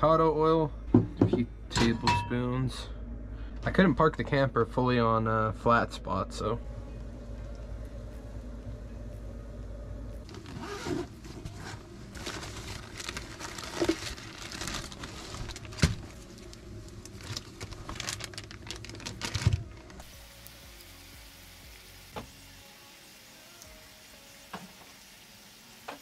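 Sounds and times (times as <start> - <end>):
low hum: 0.0 - 22.8
plastic bags crinkling: 10.2 - 20.0.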